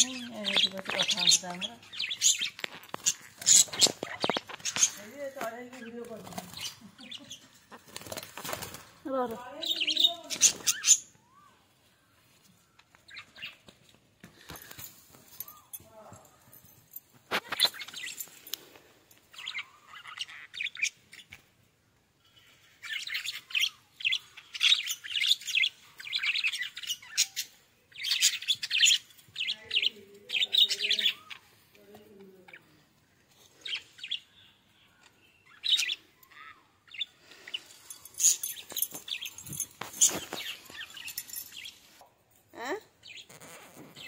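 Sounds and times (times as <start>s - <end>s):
budgerigars chirping: 0.0s - 7.5s, 19.3s - 21.4s, 22.8s - 31.5s, 35.4s - 36.1s.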